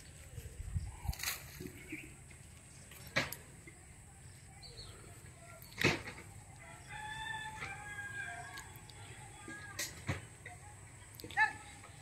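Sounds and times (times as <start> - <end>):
rooster crowing: 6.6 - 8.6.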